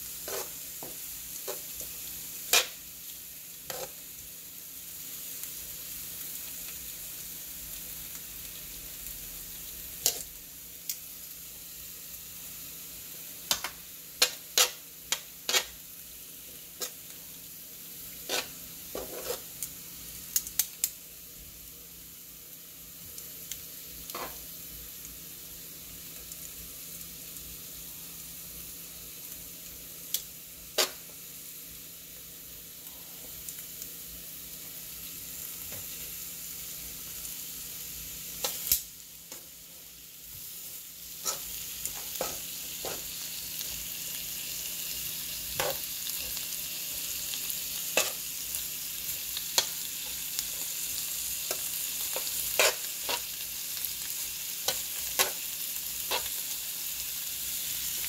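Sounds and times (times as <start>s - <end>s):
food sizzling on griddle: 0.0s - 58.0s
metal tongs clicking on griddle: 20.3s - 20.9s, 38.4s - 39.4s.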